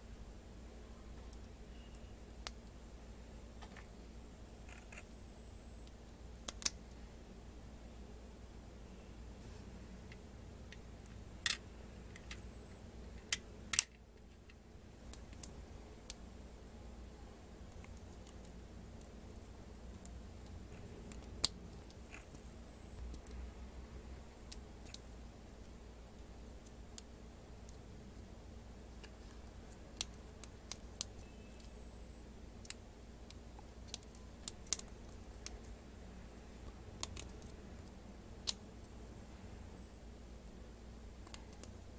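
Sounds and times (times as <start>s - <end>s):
faint low hum: 0.0s - 41.9s
plastic parts clicking together: 13.2s - 15.5s.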